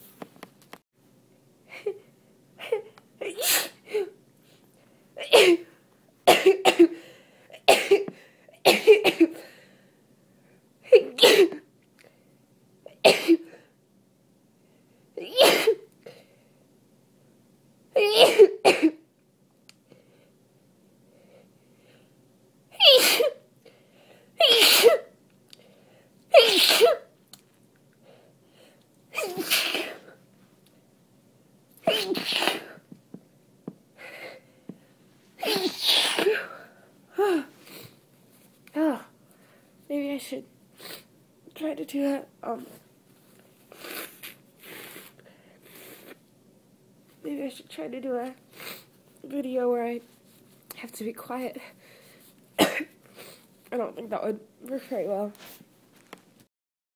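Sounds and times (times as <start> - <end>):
person sneezing wetly: 2.6 - 4.2, 5.2 - 5.7, 7.6 - 9.4, 10.9 - 11.6, 15.2 - 15.9, 18.0 - 19.0, 22.8 - 23.4, 24.4 - 25.1, 26.3 - 27.1, 29.1 - 30.2, 31.8 - 32.9, 35.4 - 37.9.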